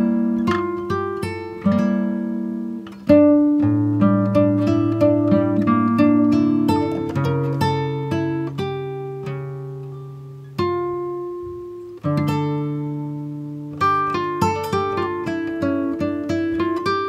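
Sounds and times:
acoustic guitar music: 0.0s - 17.0s.

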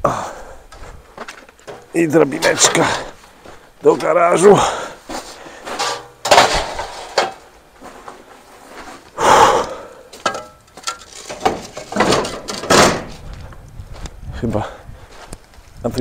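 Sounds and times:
ladder knocking and scraping: 1.6s - 3.1s, 5.1s - 9.0s, 10.2s - 13.2s.

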